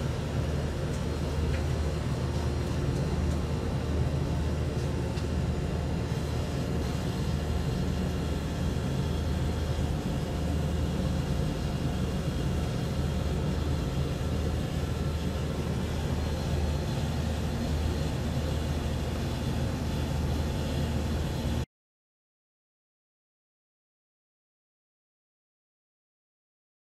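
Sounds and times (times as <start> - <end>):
air conditioner humming: 0.0 - 21.7.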